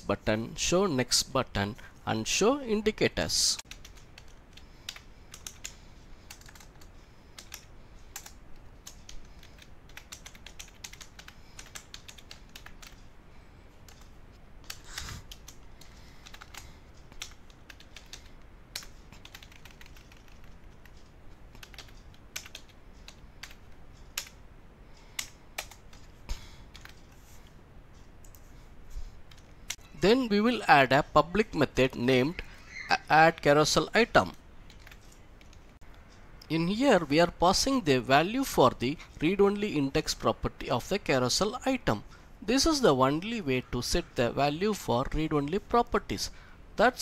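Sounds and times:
typing on computer keyboard: 0:03.7 - 0:13.0, 0:13.9 - 0:24.4, 0:25.1 - 0:26.1.

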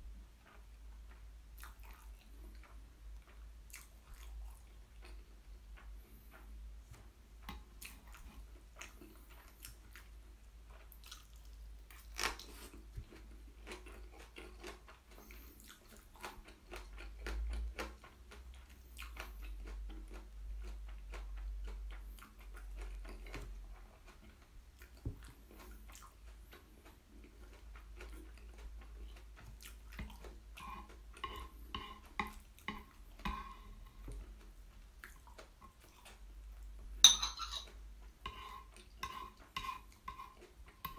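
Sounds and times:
close chewing and mouth smacks: 0:00.1 - 0:37.0, 0:37.6 - 0:40.9
metal chopsticks clinking: 0:37.0 - 0:37.7.

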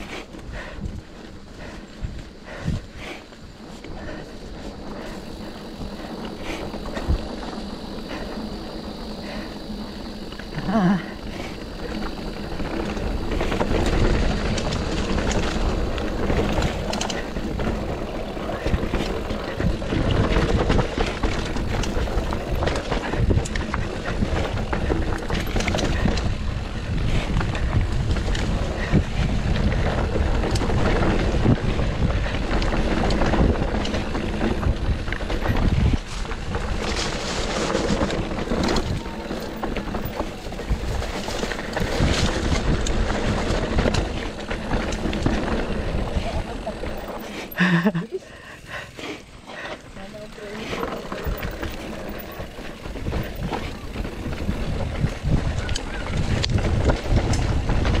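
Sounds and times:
bike tyres rolling on dirt trail: 0:00.0 - 0:58.0
bike knocks and rattles: 0:50.2 - 0:58.0.

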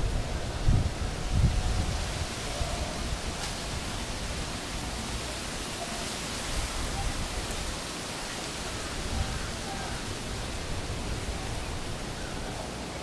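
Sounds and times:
steady rushing outdoor noise: 0:00.0 - 0:13.0
faint voices: 0:04.4 - 0:13.0.

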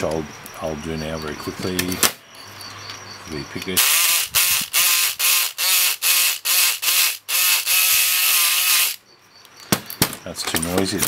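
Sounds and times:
electric lock pick gun buzzing: 0:03.8 - 0:09.0.

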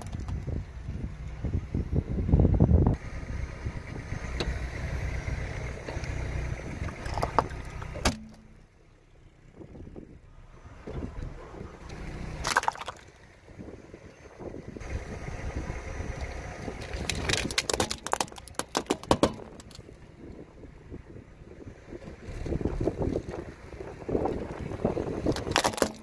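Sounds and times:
plastic cracking under tyre: 0:00.0 - 0:00.6, 0:12.4 - 0:13.2, 0:16.8 - 0:20.0, 0:25.2 - 0:26.0
low car rumble: 0:00.0 - 0:26.0.

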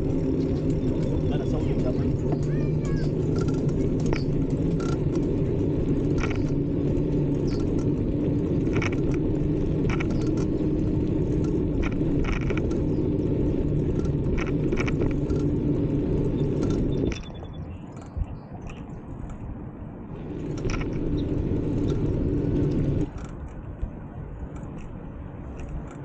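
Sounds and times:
bicycle tyre rumble: 0:00.0 - 0:26.0
bike clicks and rattles: 0:00.0 - 0:26.0.

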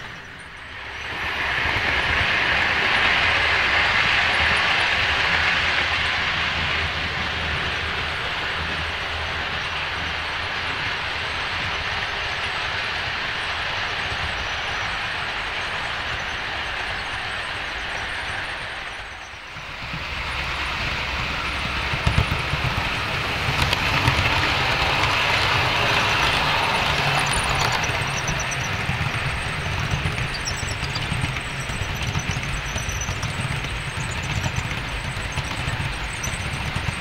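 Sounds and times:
model train motor hum and wheel rumble: 0:00.0 - 0:37.0.

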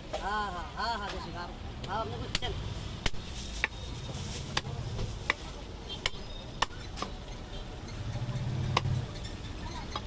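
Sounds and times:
cleaver chopping meat on wood: 0:08.7 - 0:08.9.

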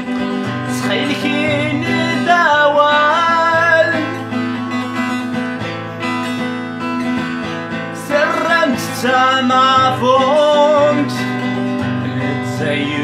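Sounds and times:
man singing: 0:00.0 - 0:04.6, 0:08.0 - 0:13.0
acoustic guitar: 0:00.0 - 0:13.0.

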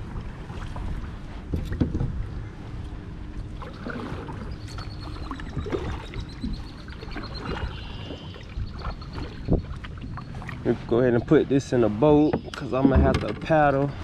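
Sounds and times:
paddle dipping into water: 0:00.0 - 0:02.2, 0:02.8 - 0:13.8
soft splashes and drips: 0:02.8 - 0:10.9.

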